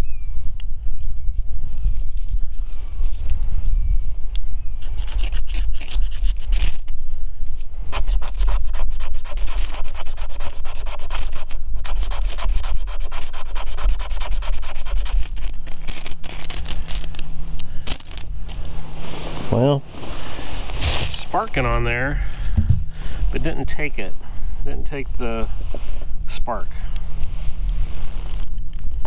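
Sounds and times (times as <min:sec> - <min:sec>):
steady low rumble: 0:14.8 - 0:29.0.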